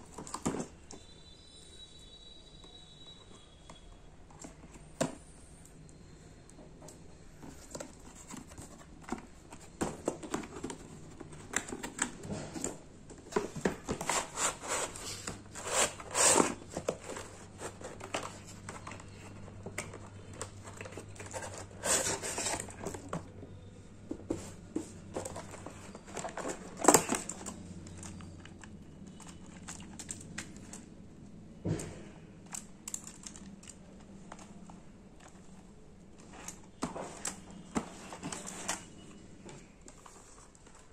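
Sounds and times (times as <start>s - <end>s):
packaging crinkling and rustling: 7.4s - 23.3s, 24.3s - 31.0s, 32.5s - 40.9s.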